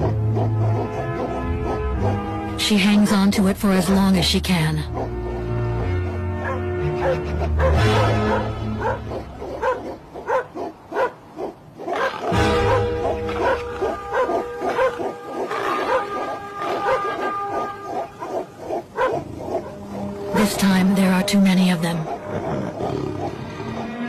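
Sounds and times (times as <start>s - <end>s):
dogs barking rapidly: 0.0s - 2.4s, 3.9s - 20.2s
background music: 0.0s - 24.0s.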